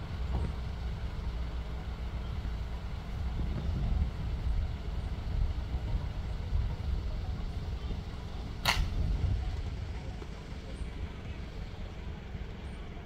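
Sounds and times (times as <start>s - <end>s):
wind rumble on microphone: 0.0s - 1.4s, 2.2s - 11.8s
sharp crack: 8.6s - 9.0s.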